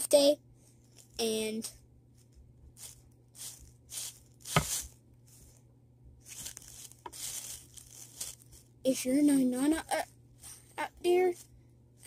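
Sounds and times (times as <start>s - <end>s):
fabric puppet rustling: 6.2s - 8.6s.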